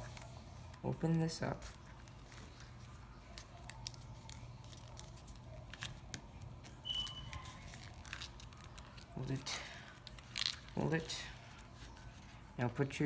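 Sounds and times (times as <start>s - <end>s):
paper crinkling: 0.0s - 12.6s
low steady hum: 0.0s - 13.0s
high squeak: 6.8s - 7.4s.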